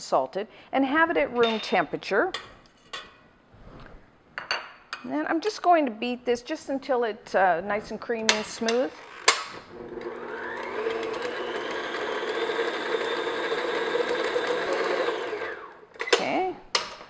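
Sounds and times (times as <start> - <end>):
stand mixer motor whirring: 9.0 - 15.8.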